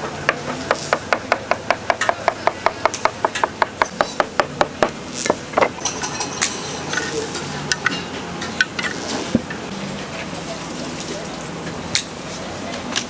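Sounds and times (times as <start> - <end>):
light metallic clatter: 5.7 - 9.3.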